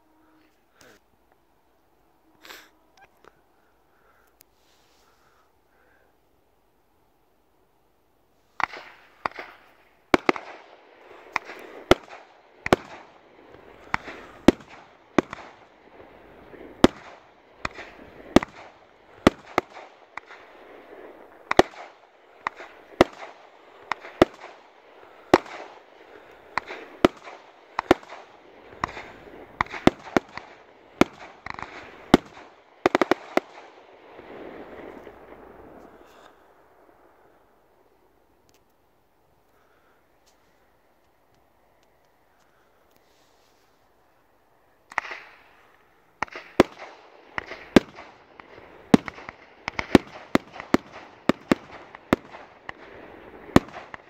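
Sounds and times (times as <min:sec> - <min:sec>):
firework crackling hiss: 0:08.4 - 0:33.5
firework shots: 0:08.6 - 0:38.7, 0:44.8 - 0:54.0.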